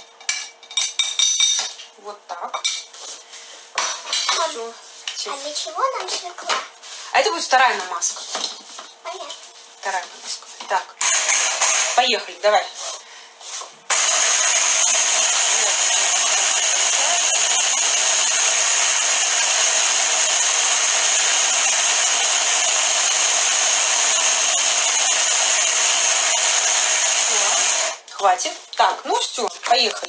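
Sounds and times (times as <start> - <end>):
hand blender motor chopping: 11.0 - 12.0, 13.9 - 28.0.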